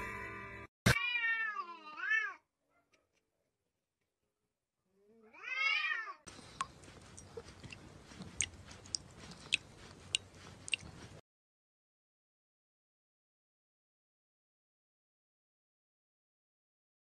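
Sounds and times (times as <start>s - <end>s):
cat meowing: 0.9s - 2.4s, 5.0s - 6.2s
cat licking wet clicks: 6.3s - 11.2s.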